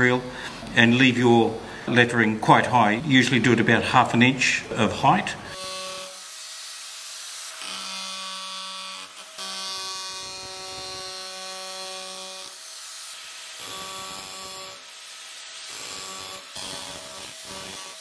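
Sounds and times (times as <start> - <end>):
power chisel motor hum: 5.5 - 18.0.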